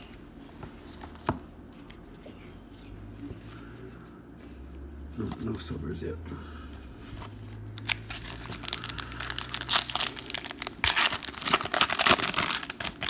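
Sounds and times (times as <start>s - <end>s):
foil wrappers tearing and crinkling: 7.8s - 13.0s.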